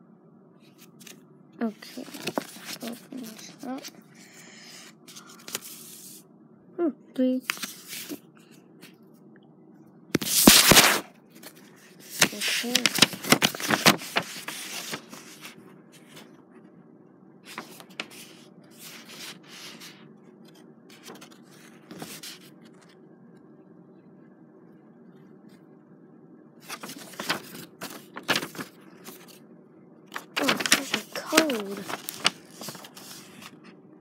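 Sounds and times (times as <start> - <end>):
paper pages rustling: 0.6 - 4.3, 5.1 - 6.2, 7.4 - 8.3, 10.2 - 16.4, 17.5 - 23.0, 26.6 - 29.4, 30.1 - 33.8.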